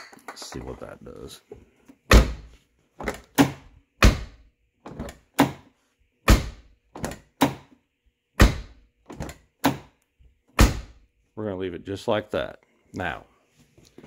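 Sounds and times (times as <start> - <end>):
car door thudding shut: 2.1 - 4.4, 6.3 - 6.6, 8.4 - 8.8, 10.6 - 11.0.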